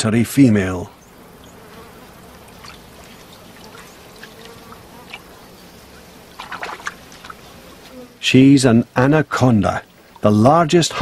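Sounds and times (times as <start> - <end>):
insects buzzing: 0.2 - 11.0
water trickling: 1.0 - 7.9, 9.9 - 10.9.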